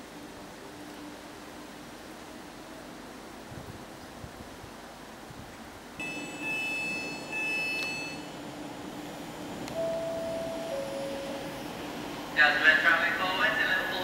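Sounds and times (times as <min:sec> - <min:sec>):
rain: 0:00.0 - 0:06.0
locomotive humming: 0:00.0 - 0:14.0
wind: 0:00.0 - 0:14.0.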